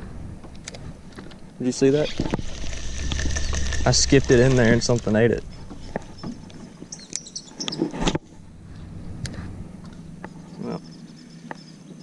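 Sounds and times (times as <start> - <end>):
low steady hum: 0.0 - 12.0
fishing reel clicks and rustles: 2.1 - 6.6
faint bird chirps: 6.1 - 7.8.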